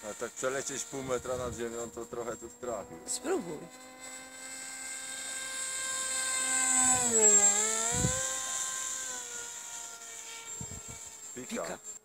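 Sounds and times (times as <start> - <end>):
model plane motor whining: 0.0 - 12.0.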